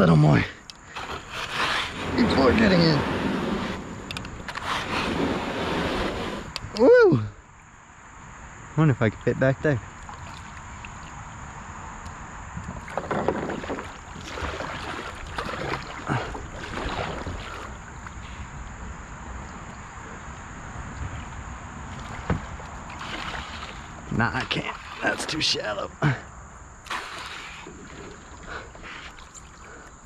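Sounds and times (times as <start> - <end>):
paddle splashing in water: 0.9 - 6.5, 9.9 - 11.2, 12.8 - 18.7, 20.9 - 25.7, 26.8 - 30.0
paddle knocking on hull: 12.8 - 17.8, 22.0 - 23.8.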